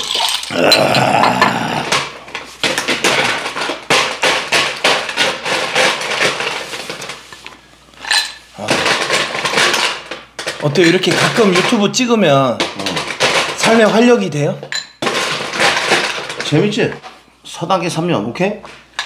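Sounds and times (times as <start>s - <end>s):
ice clinking in metal bucket: 0.0s - 1.1s.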